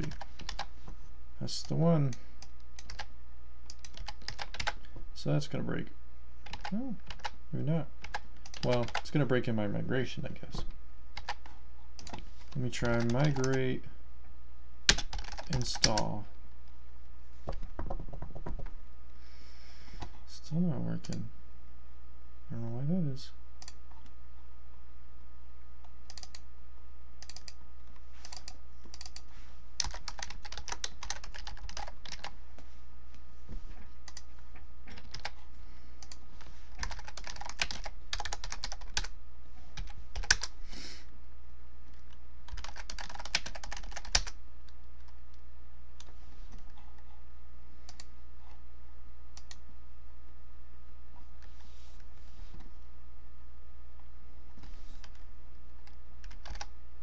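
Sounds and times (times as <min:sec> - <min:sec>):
typing on computer keyboard: 0:02.8 - 0:03.1, 0:03.7 - 0:04.8, 0:06.5 - 0:07.4, 0:08.0 - 0:09.0, 0:14.9 - 0:16.0, 0:28.2 - 0:29.2, 0:29.8 - 0:32.3, 0:36.8 - 0:39.1, 0:39.8 - 0:40.5, 0:42.0 - 0:44.4, 0:56.2 - 0:56.7.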